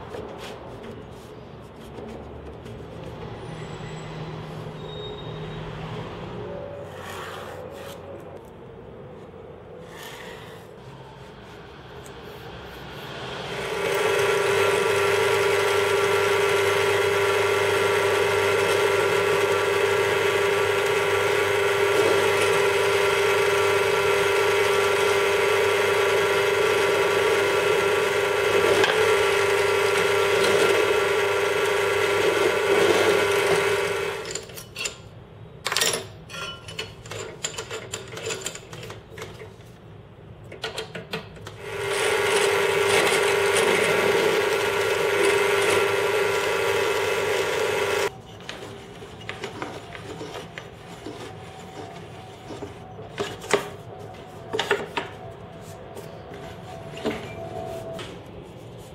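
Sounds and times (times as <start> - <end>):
drill press motor running: 13.4 - 34.3, 41.6 - 48.1
drill bit boring into chipboard: 13.6 - 34.3, 41.6 - 48.1.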